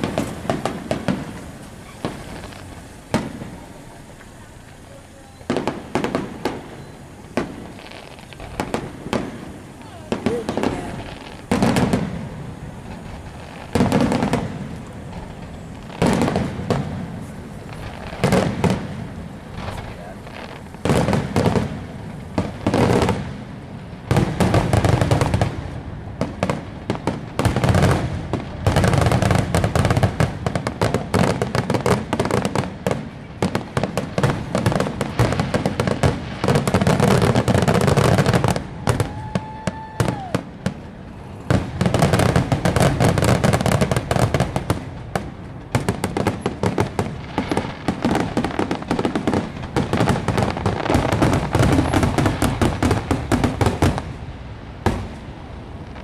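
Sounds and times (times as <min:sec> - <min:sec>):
fireworks bursting and crackling: 0:00.0 - 0:56.0
steady whistling tone: 0:06.6 - 0:07.4.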